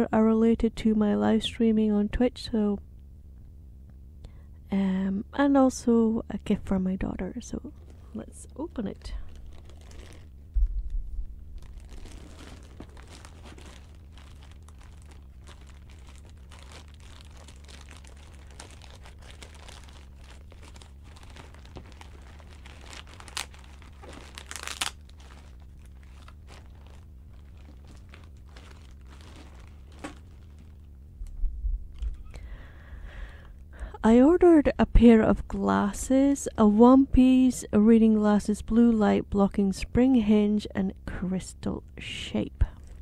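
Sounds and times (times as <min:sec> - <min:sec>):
steady low hum: 0:00.0 - 0:43.0
plastic bag tearing and crinkling: 0:07.7 - 0:30.9.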